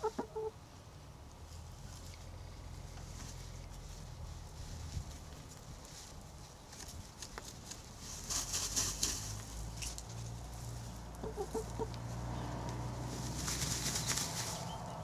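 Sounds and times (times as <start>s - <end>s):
hens clucking softly: 0.0s - 0.6s, 11.1s - 12.1s
hens dust bathing in dirt: 0.0s - 15.0s.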